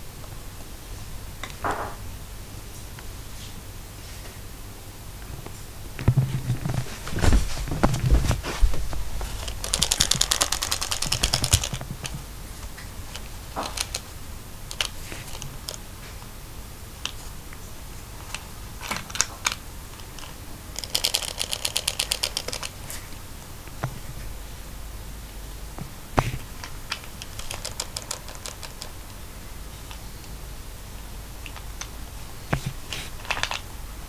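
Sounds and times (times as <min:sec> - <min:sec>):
low thumps: 0:05.9 - 0:09.7
toy mechanism clicking rapidly: 0:09.3 - 0:11.9, 0:13.1 - 0:15.8, 0:18.8 - 0:22.8, 0:26.9 - 0:29.1.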